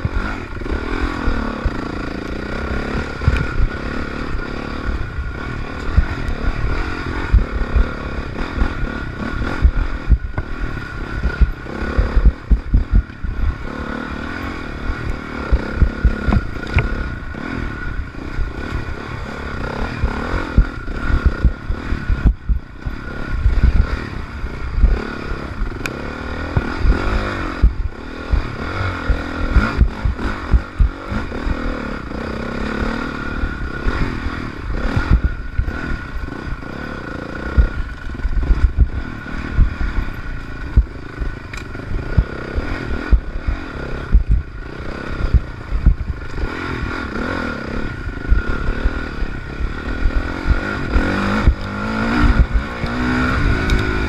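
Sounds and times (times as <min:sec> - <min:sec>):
dirt bike engine revving: 0:00.0 - 0:54.0
bike thumping and rattling: 0:14.9 - 0:17.6.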